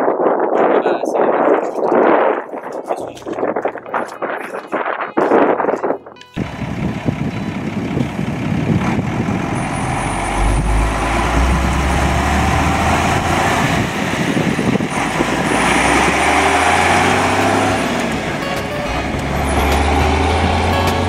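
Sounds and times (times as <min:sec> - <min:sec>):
tires on gravel: 0:02.0 - 0:21.0
diesel truck engine rumble: 0:06.4 - 0:21.0.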